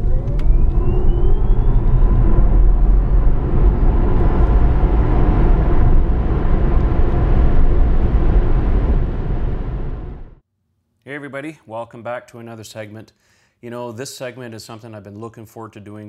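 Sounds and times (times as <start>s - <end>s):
deep heavy rumble: 0.0s - 10.4s
rising whoosh: 0.0s - 10.4s.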